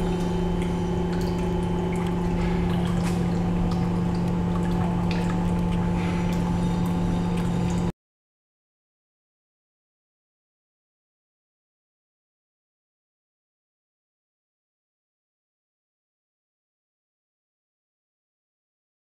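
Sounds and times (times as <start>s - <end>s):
water flowing through hoses: 0.0s - 7.9s
water pump humming: 0.0s - 7.9s.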